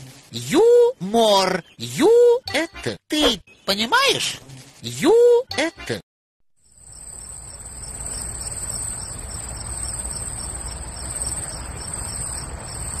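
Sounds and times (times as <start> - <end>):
crickets chirping: 6.6 - 13.0.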